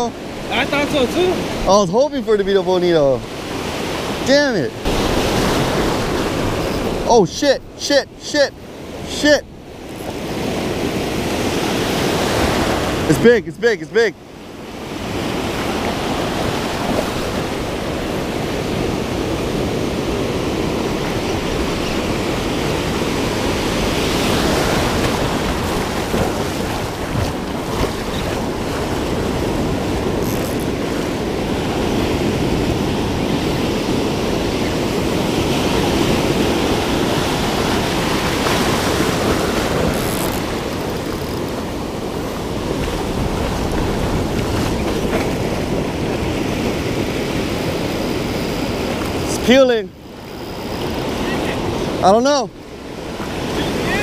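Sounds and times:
ocean surf breaking on beach: 0.0s - 54.0s
wind on microphone: 14.6s - 49.4s.

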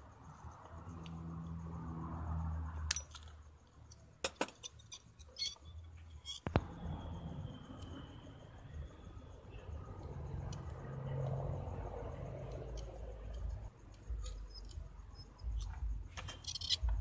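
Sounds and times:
small metal parts clinking: 2.8s - 6.6s, 12.4s - 17.0s.

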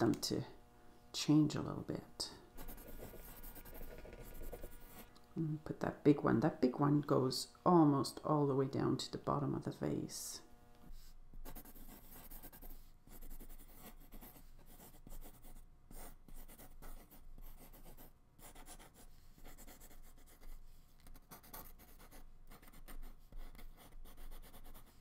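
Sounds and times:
pencil scratching on paper: 2.6s - 5.1s, 10.8s - 25.0s.

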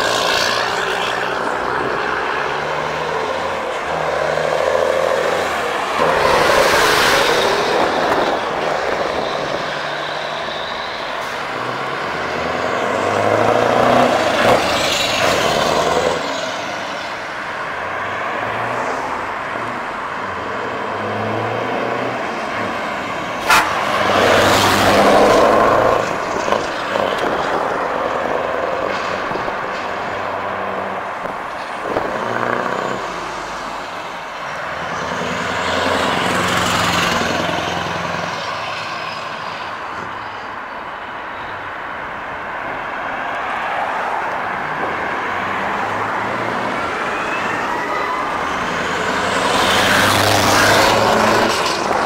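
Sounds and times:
heavy trucks driving past: 0.0s - 40.2s, 44.0s - 52.0s.

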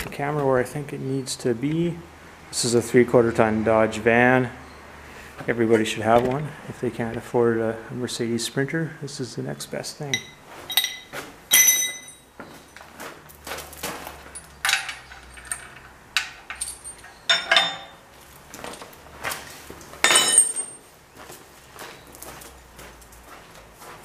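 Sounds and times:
steel tools clanking on metal: 10.1s - 12.9s, 14.1s - 18.0s, 20.0s - 20.8s
footsteps on gravel: 12.4s - 14.4s, 21.1s - 24.0s.

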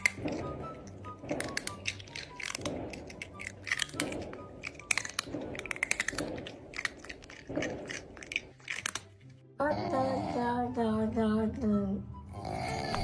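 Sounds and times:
crunchy chewing: 0.0s - 9.4s
faint low music: 0.0s - 13.0s.

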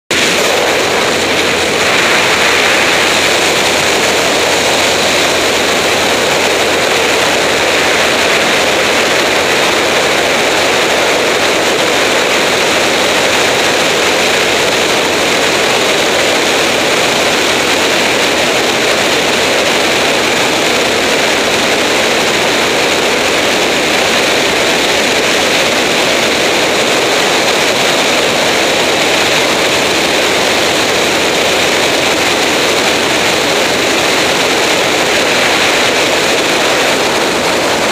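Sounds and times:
light aircraft wind and engine: 0.1s - 37.9s.

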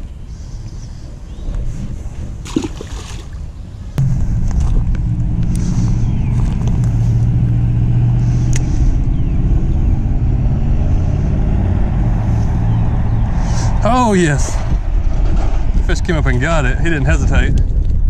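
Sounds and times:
road traffic drone: 3.7s - 16.4s.

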